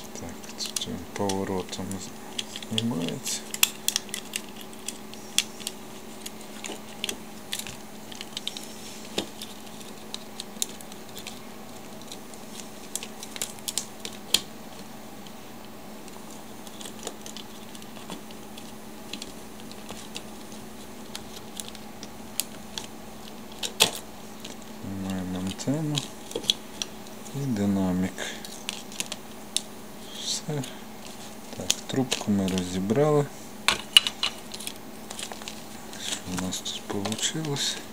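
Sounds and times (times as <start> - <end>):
steady low hum: 0.0 - 37.9
plastic parts clicking and tapping: 0.5 - 11.4, 31.5 - 33.0, 33.7 - 37.8.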